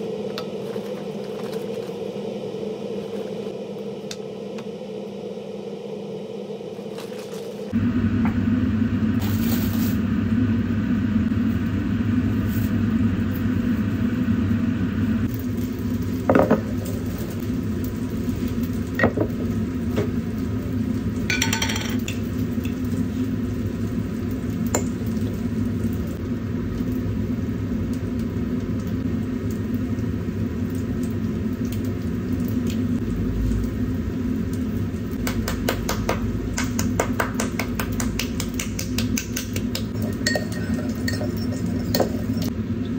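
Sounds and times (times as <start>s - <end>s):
steady low hum: 0.0s - 42.9s
dishes and glassware clinking: 21.3s - 22.0s, 40.0s - 42.5s.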